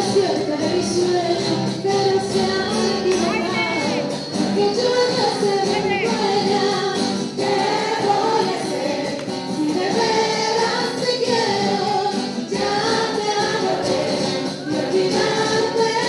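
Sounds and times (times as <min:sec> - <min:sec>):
woman singing into microphone: 0:00.0 - 0:08.8
acoustic guitar: 0:00.0 - 0:16.0.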